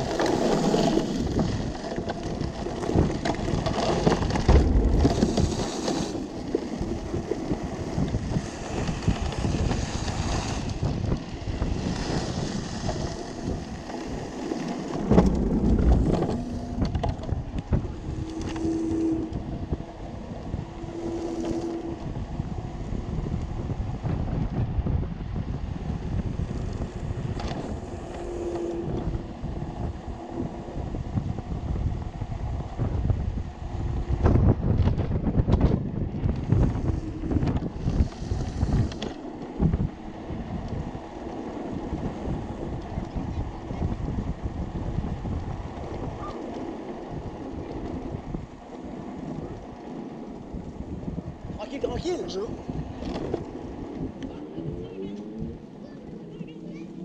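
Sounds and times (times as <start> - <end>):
tyres rumbling over gravel: 0.0 - 22.3
tyres rolling on tarmac: 0.0 - 57.0
wind buffeting microphone: 0.0 - 57.0.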